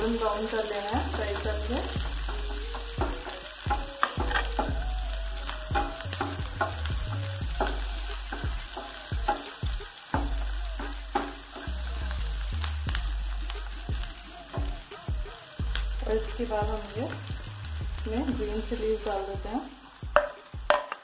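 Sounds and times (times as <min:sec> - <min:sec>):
onions sizzling in oil: 0:00.0 - 0:21.0
spatula scraping and tapping pan: 0:00.6 - 0:04.8, 0:05.5 - 0:11.8, 0:20.1 - 0:21.0.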